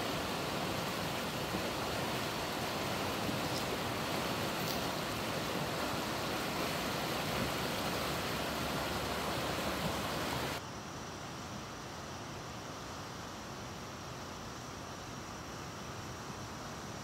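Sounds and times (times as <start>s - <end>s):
stream rushing over rocks: 0.0s - 10.6s
steady hiss: 0.0s - 17.0s.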